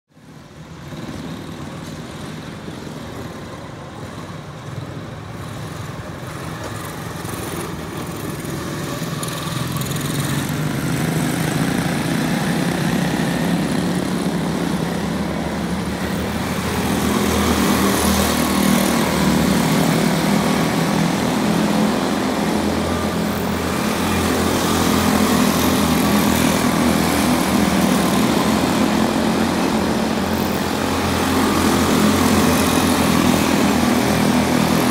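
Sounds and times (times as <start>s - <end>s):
small race car engines buzzing: 0.2s - 34.9s.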